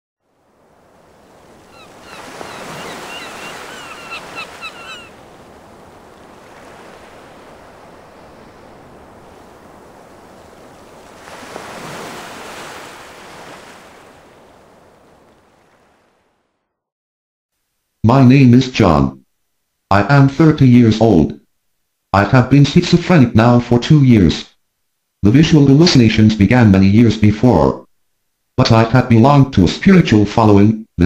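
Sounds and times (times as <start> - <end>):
ocean waves washing in: 0.2 - 16.7.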